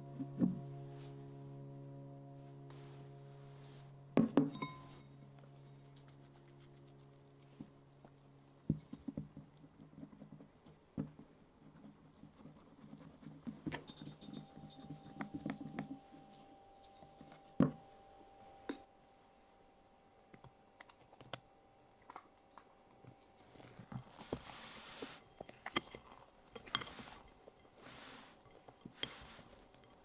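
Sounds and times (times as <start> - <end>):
steady low hum: 0.0 - 30.0
spatula scraping glass bowl: 26.6 - 29.6.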